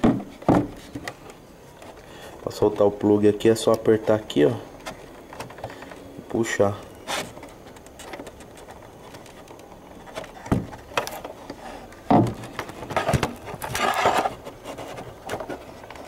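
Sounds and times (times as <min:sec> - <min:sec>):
rustling and scraping: 0:00.0 - 0:16.0
plastic knocks and clicks: 0:07.7 - 0:11.2.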